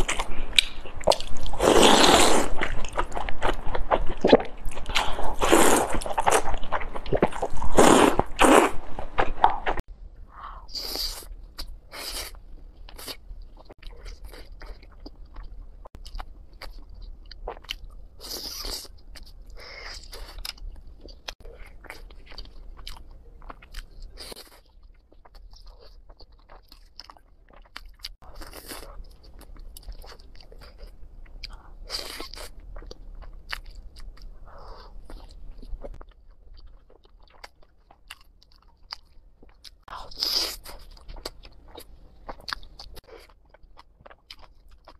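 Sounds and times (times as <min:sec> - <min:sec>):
biting and chewing: 0:00.0 - 0:09.8.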